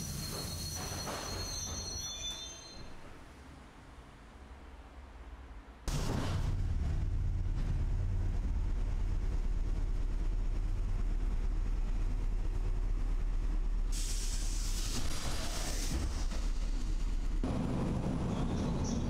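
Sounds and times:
train rumbling: 0.0s - 19.0s
hiss: 13.9s - 17.0s.

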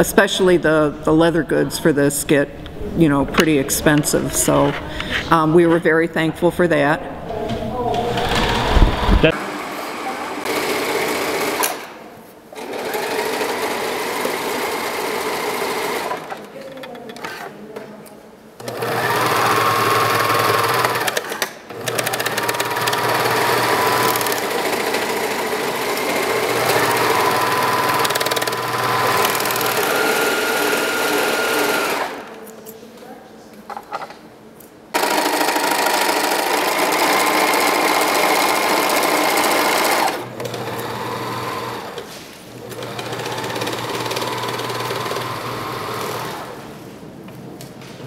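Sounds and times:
sewing machine motor whine: 8.2s - 11.9s, 12.6s - 17.5s, 18.6s - 32.4s, 35.0s - 42.0s, 42.6s - 46.6s.

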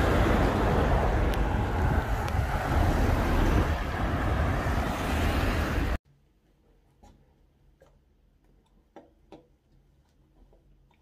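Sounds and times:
road traffic rumble: 0.0s - 6.0s.

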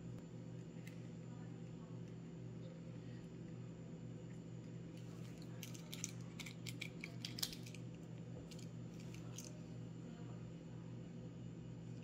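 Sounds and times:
steady low hum: 0.0s - 12.0s
small metal lock parts clicking: 5.6s - 7.8s.

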